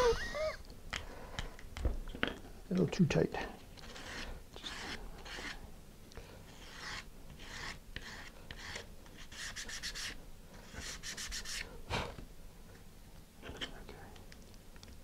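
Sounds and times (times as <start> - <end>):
hand sanding wood: 3.8 - 5.6, 6.6 - 11.7.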